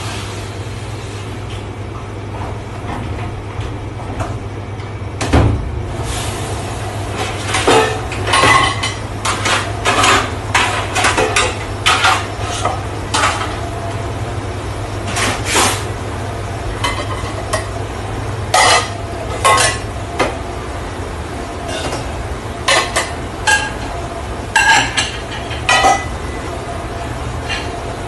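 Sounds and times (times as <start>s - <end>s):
low hum of kitchen machinery: 0.0s - 28.0s
metal dishes clanking: 7.4s - 13.6s, 18.5s - 19.9s, 24.5s - 26.2s.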